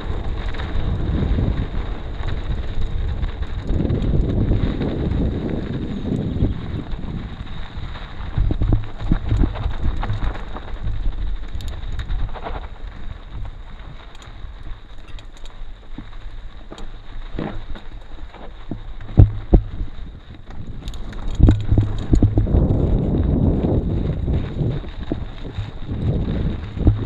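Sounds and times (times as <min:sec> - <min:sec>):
wind buffeting microphone: 0:00.0 - 0:27.0
sharp knocks and rattles: 0:19.1 - 0:19.9, 0:21.2 - 0:22.8, 0:26.8 - 0:27.0.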